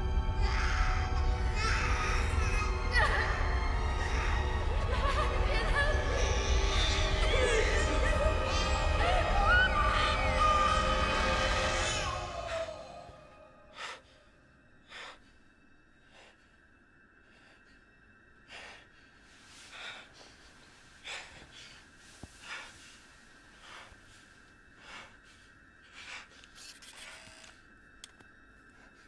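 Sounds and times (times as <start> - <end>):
man breathing hard: 13.6 - 26.6.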